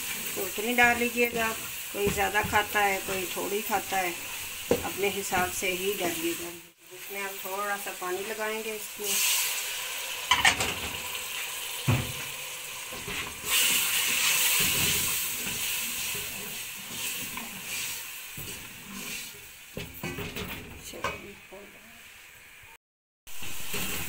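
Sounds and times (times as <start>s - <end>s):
water sizzling in hot oil: 0.0s - 24.0s
spoon stirring and scraping pot: 12.9s - 21.2s.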